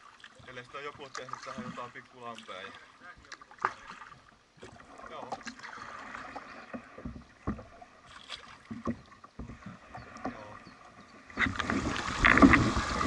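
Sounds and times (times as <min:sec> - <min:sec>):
paddle knocking against hull: 0:03.1 - 0:13.0.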